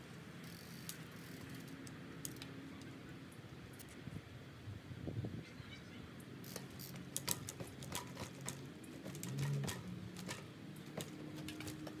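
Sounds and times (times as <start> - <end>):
bike hub clicking: 6.4 - 12.0.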